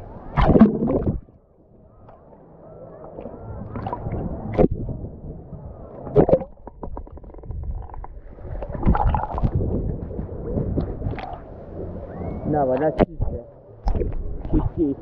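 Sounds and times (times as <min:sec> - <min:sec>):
sea water sloshing and gurgling: 0:00.2 - 0:15.0
water splashes: 0:00.3 - 0:01.3, 0:03.1 - 0:05.1, 0:06.0 - 0:15.0.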